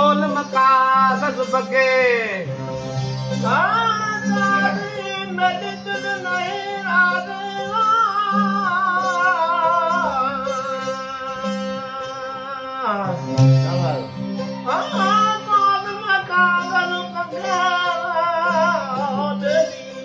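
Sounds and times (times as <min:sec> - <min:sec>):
strummed lute drone: 0:00.0 - 0:20.0
men singing with vibrato: 0:03.4 - 0:20.0.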